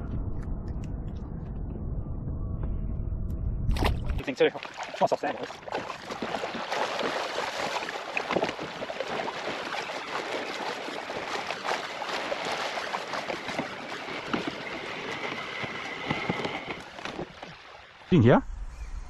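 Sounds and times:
water lapping against kayak hull: 3.7 - 18.1.

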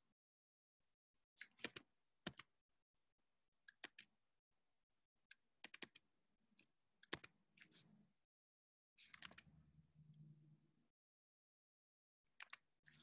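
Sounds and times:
computer keyboard keystrokes: 5.6 - 6.0, 7.0 - 7.3, 12.4 - 12.6.

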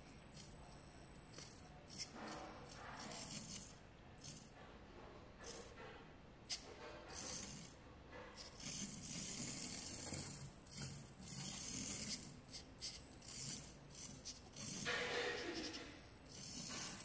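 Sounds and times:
toy car motor whirring: 0.0 - 4.5, 5.4 - 5.8, 6.5 - 17.0
thin high whine: 0.0 - 4.6, 8.4 - 17.0.

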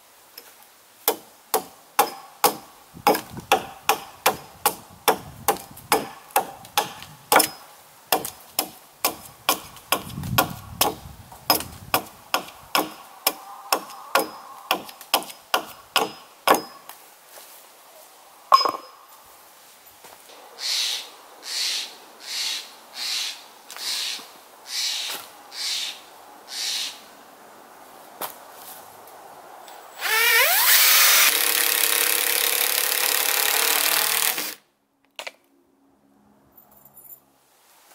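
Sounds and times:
hatchet striking log: 1.1 - 16.8.

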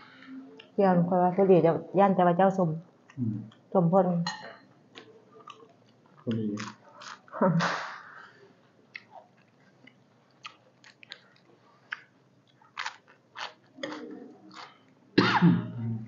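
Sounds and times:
chewing and crunching food: 4.9 - 7.3, 8.9 - 15.0.

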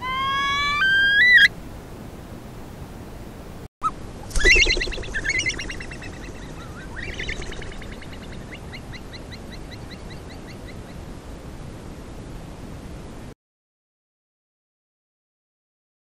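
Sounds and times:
harsh bird call burst: 4.3 - 5.9
short rising bird whistles: 4.4 - 5.9.

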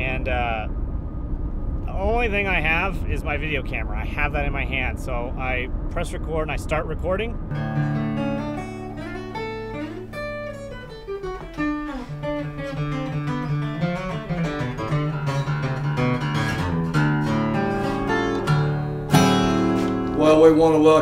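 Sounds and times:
acoustic guitar strumming: 7.4 - 21.0.

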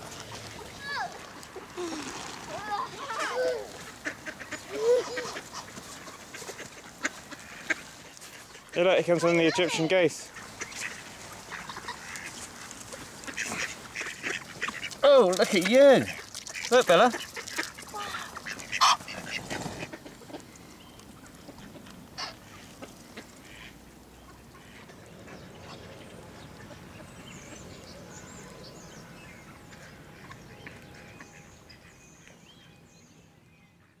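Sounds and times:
ducks quacking: 2.5 - 32.4
goose calls: 2.8 - 15.0, 15.6 - 20.3.

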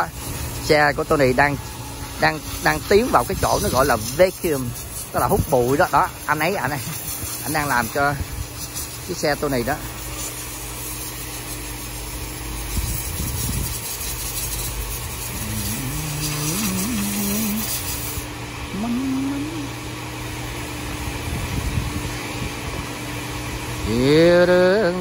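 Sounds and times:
car wash equipment hum: 0.0 - 25.0
high hiss: 12.6 - 20.0.

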